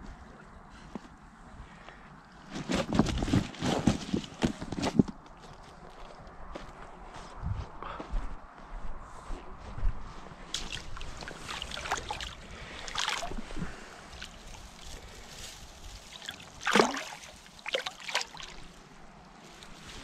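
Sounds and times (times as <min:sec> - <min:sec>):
water splashing and sloshing: 0:10.5 - 0:20.0.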